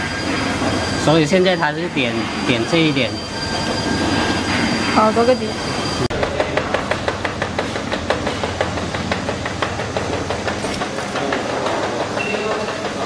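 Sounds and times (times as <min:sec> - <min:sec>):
continuous machine hum: 0:00.0 - 0:13.0
machinery clattering clicks and knocks: 0:06.1 - 0:13.0.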